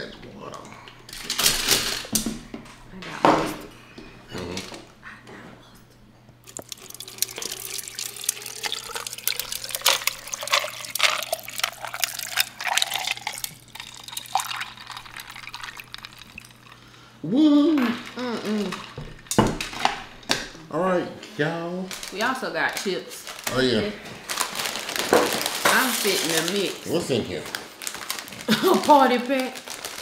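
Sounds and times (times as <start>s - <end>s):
water sloshing in a tumbler: 6.5s - 16.7s.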